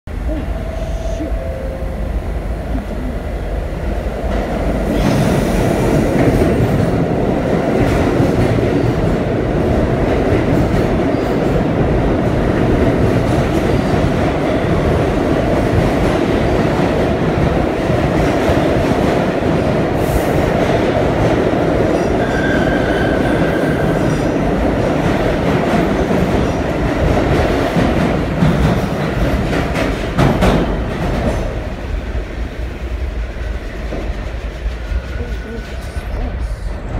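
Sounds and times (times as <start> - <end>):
train wheels rumbling on rails: 0.1 - 36.9.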